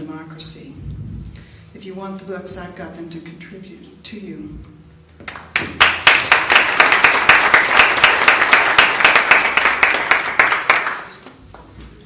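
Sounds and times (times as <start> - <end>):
audience applauding: 5.3 - 11.3.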